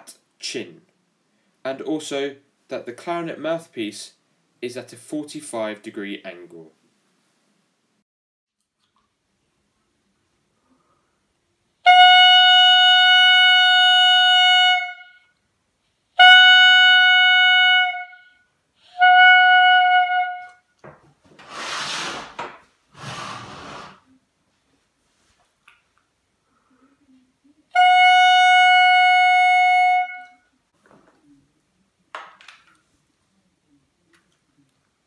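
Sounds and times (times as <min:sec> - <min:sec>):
clarinet mouthpiece tones: 0:16.2 - 0:20.7, 0:27.7 - 0:30.6
rustling noise: 0:21.0 - 0:25.9.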